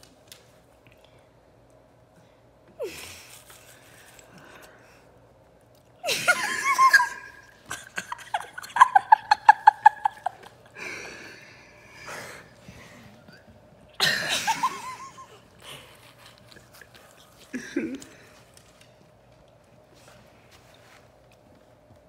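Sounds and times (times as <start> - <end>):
boy laughing hard: 6.0 - 10.6, 14.0 - 15.4.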